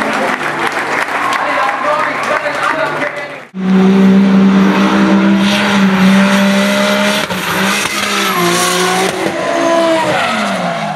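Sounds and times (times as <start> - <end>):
car engine at high revs: 3.5 - 10.9.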